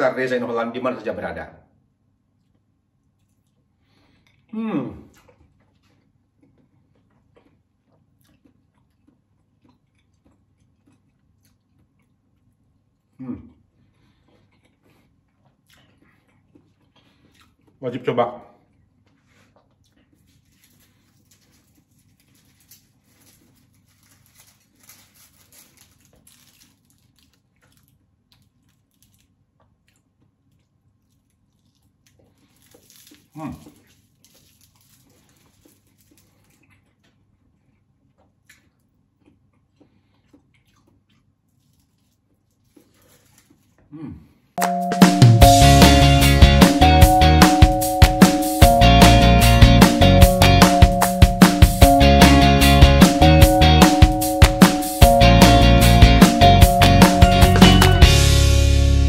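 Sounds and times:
faint chewing: 0:02.1 - 0:44.5
leaf wrapper rustling: 0:20.2 - 0:29.4, 0:31.6 - 0:36.6, 0:41.6 - 0:43.8.

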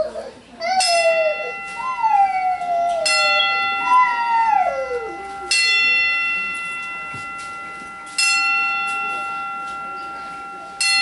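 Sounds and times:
dog howling: 0:00.0 - 0:05.6
boxing ring bell ringing: 0:00.6 - 0:11.0.

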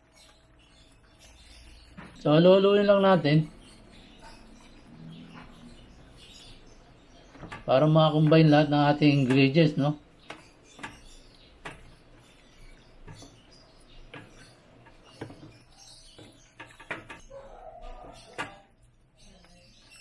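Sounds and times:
wooden spatula stirring stew: 0:00.0 - 0:20.0
spatula knocking and scraping pan: 0:02.8 - 0:18.7.

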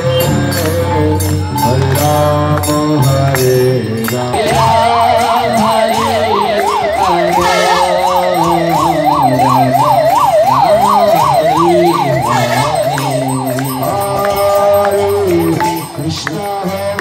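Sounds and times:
low held tones: 0:04.3 - 0:16.1
electronic siren yelping: 0:04.4 - 0:15.8.

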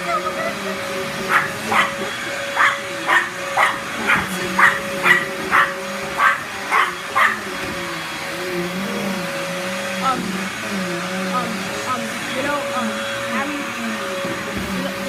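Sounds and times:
vacuum cleaner humming: 0:00.0 - 0:15.0
small dog yapping: 0:01.3 - 0:07.4.

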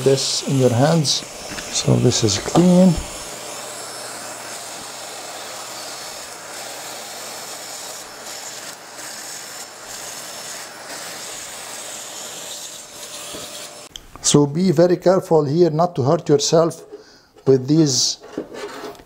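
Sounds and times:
vacuum cleaner running: 0:00.0 - 0:13.9.

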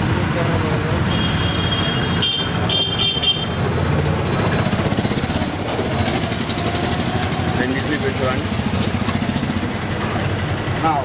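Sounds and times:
street traffic rumble: 0:00.0 - 0:11.0.

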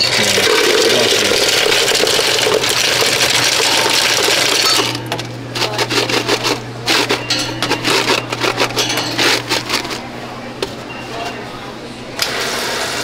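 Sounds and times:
ice cubes rattling into cup: 0:00.0 - 0:05.0, 0:05.6 - 0:10.0
machine hum: 0:00.0 - 0:12.7
clinks and knocks: 0:06.1 - 0:10.0.

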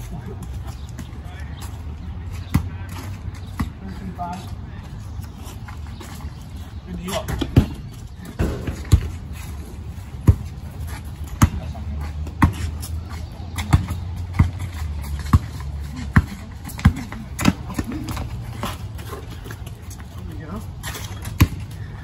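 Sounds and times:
basketball bouncing on concrete: 0:02.3 - 0:04.1, 0:07.1 - 0:09.5, 0:10.1 - 0:20.1, 0:20.8 - 0:21.9.

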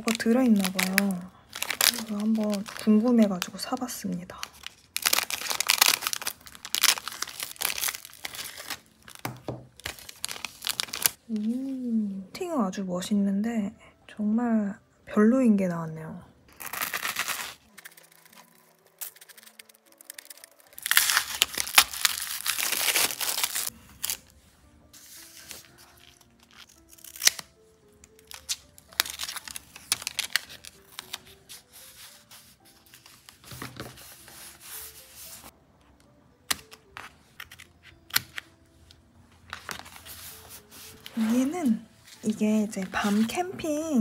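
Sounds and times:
plastic and paper packaging crinkling: 0:00.0 - 0:11.6, 0:16.5 - 0:24.3, 0:25.0 - 0:35.5, 0:39.5 - 0:43.8
soft background music: 0:00.0 - 0:44.0.

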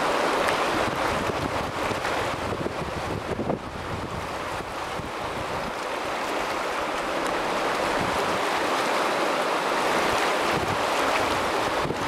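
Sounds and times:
wind noise on microphone: 0:00.0 - 0:05.8, 0:07.6 - 0:08.5, 0:09.9 - 0:12.0
river rapids rushing: 0:00.0 - 0:12.0.

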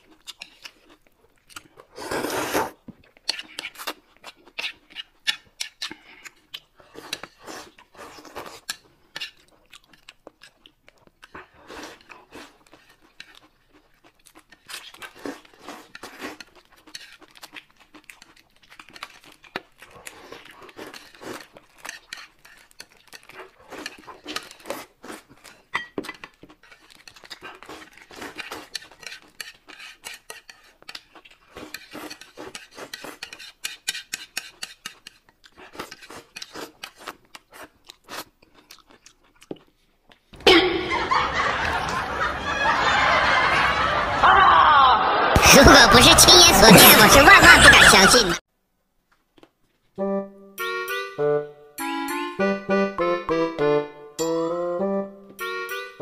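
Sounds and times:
chewing and crunching: 0:00.0 - 0:02.0, 0:02.8 - 0:40.4
chopsticks scraping a plate: 0:02.0 - 0:03.9, 0:14.5 - 0:19.4, 0:20.0 - 0:38.3.

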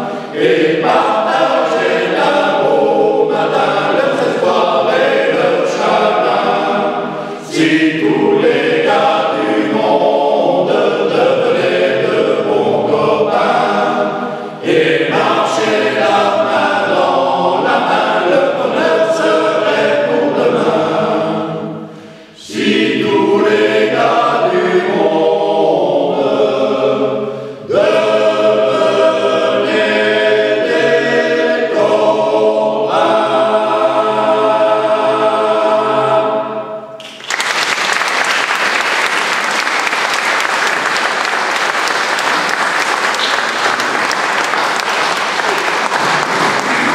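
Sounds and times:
men's choir singing: 0:00.0 - 0:37.0
audience applause: 0:37.0 - 0:46.9.

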